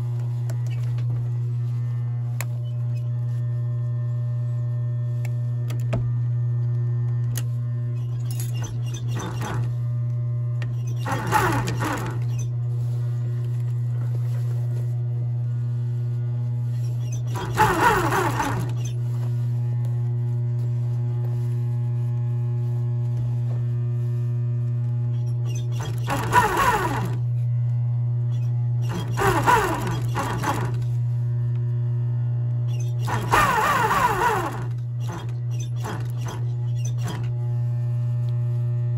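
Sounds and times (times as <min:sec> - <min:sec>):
sewing machine stitching leather: 0:08.0 - 0:09.8, 0:10.7 - 0:12.5, 0:16.8 - 0:19.3, 0:25.1 - 0:27.3, 0:28.4 - 0:30.9, 0:32.7 - 0:37.4.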